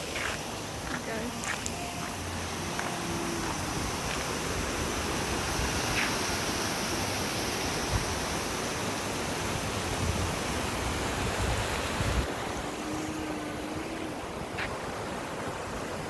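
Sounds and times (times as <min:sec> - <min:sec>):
stream rushing over stones: 0:00.0 - 0:16.0.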